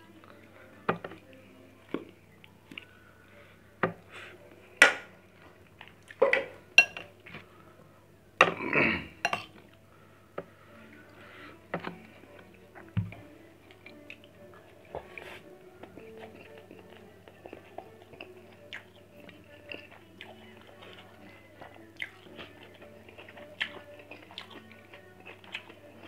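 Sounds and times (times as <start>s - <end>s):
metal spoon clinking on dishes: 6.2s - 7.1s, 9.2s - 9.5s.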